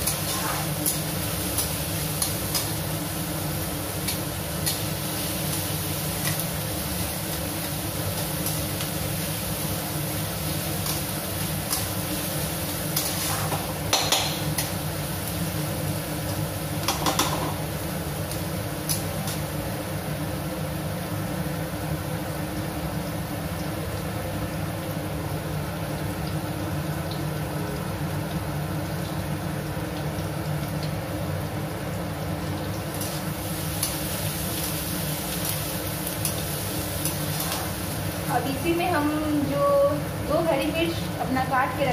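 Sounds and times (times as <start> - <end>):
onions sizzling in oil: 0.0 - 41.9
metal spatula scraping pan: 13.0 - 14.2.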